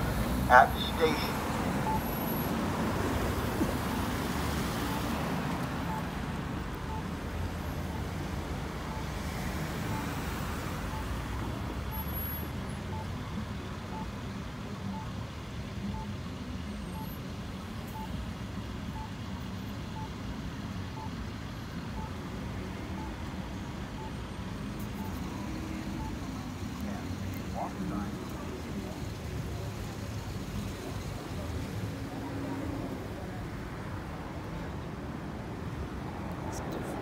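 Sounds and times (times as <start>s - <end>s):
traffic noise: 0.0s - 37.0s
short beeps: 0.5s - 2.4s, 5.9s - 6.1s, 8.9s - 9.2s, 9.9s - 10.1s, 11.9s - 13.1s, 17.9s - 18.2s, 20.0s - 20.2s, 24.0s - 26.2s.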